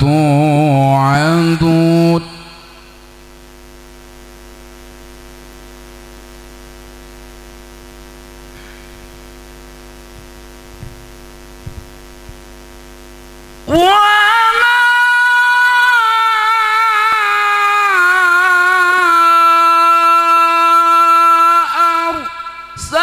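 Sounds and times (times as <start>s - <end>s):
man reciting melodically into microphone: 0.0s - 3.0s, 13.6s - 23.0s
electrical mains hum: 0.0s - 23.0s.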